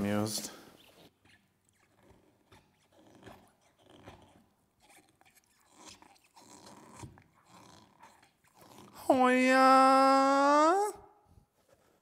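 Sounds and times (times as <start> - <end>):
dog chewing rubber toy: 0.8 - 9.1.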